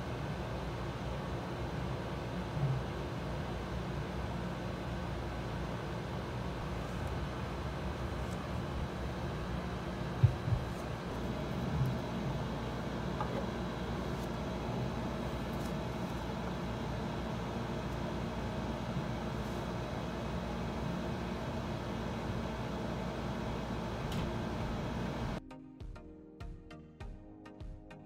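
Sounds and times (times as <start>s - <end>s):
machine hum and hiss: 0.0s - 25.4s
music: 25.4s - 28.0s.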